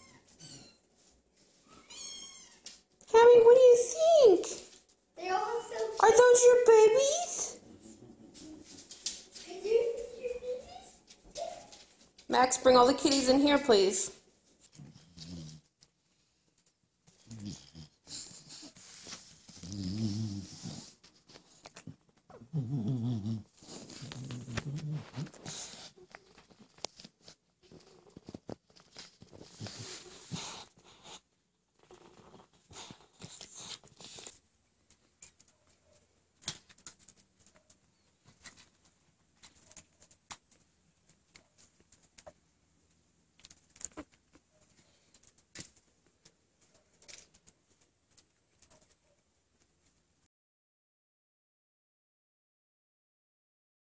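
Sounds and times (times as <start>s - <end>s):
kittens squirming with soft rustles: 0.0s - 3.1s, 14.2s - 50.1s
dog grumbling: 17.2s - 18.3s, 19.6s - 21.0s, 22.3s - 25.9s.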